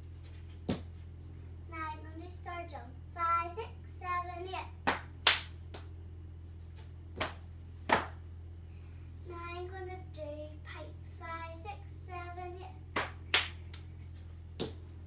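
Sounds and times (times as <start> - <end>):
sharp hand claps: 4.9 - 5.9, 7.2 - 8.2, 13.0 - 13.9.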